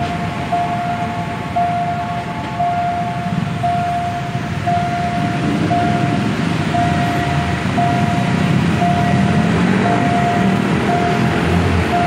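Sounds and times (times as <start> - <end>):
crossing warning signal tone: 0.0 - 12.0
traffic rumble: 0.0 - 12.0.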